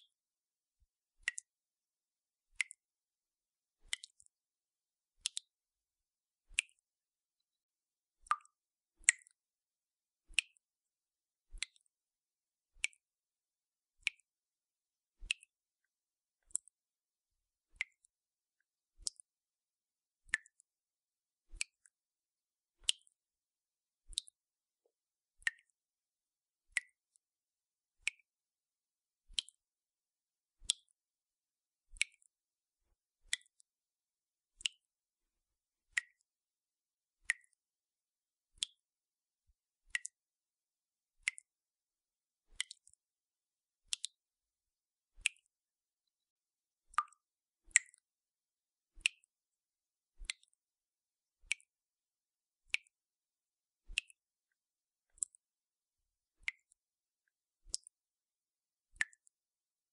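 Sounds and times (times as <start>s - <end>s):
water drops dripping from tap: 1.2s - 1.5s, 2.6s - 2.8s, 3.9s - 4.3s, 5.2s - 5.6s, 8.2s - 9.4s, 11.6s - 11.9s, 20.3s - 20.7s, 24.1s - 24.4s, 25.4s - 25.8s, 26.7s - 27.2s, 29.3s - 29.6s, 30.6s - 31.0s, 32.0s - 32.3s, 33.3s - 33.7s, 34.6s - 34.9s, 36.0s - 36.3s, 37.3s - 37.6s, 38.6s - 38.8s, 39.9s - 40.2s, 42.6s - 43.0s, 43.9s - 44.2s, 46.9s - 48.1s, 49.0s - 49.3s, 50.2s - 50.6s, 51.5s - 51.7s, 52.7s - 53.0s, 53.9s - 54.2s, 56.4s - 56.8s, 57.7s - 58.0s, 59.0s - 59.3s.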